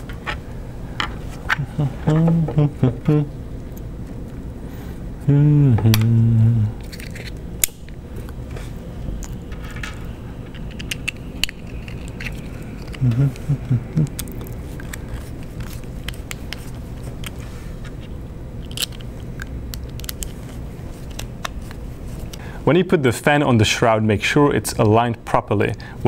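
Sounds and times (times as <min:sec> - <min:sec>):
short vocal sounds: 0:01.5 - 0:03.4, 0:05.2 - 0:06.8, 0:13.0 - 0:14.6.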